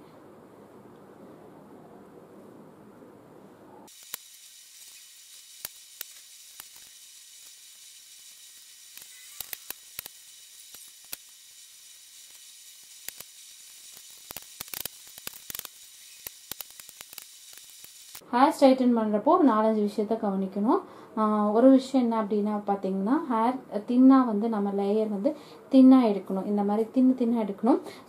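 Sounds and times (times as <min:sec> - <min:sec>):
sharp clicks: 0:03.9 - 0:11.4, 0:12.2 - 0:18.2
faint high crackling hiss: 0:03.9 - 0:18.3.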